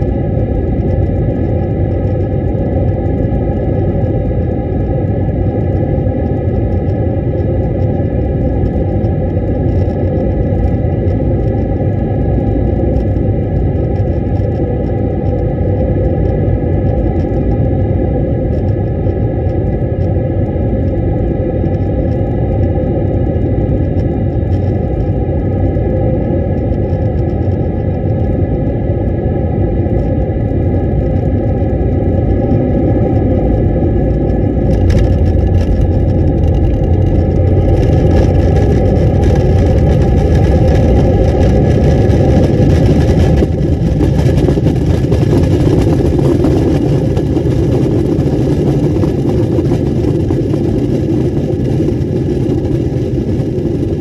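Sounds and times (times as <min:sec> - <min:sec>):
engine fan whine: 0:00.0 - 0:54.0
jet engine rumble: 0:00.0 - 0:54.0
runway rollout rush: 0:32.6 - 0:48.0.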